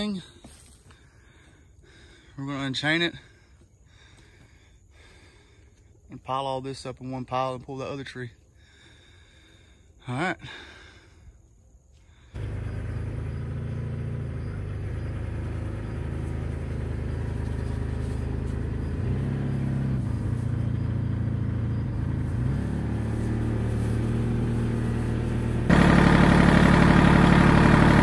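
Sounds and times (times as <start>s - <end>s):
tractor diesel engine running: 12.3s - 28.0s.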